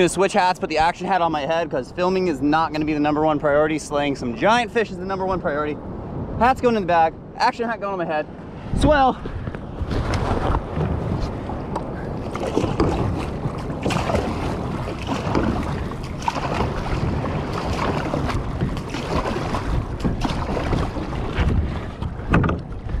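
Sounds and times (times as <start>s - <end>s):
wind buffeting microphone: 0.0s - 23.0s
water splashing against boat: 8.4s - 23.0s.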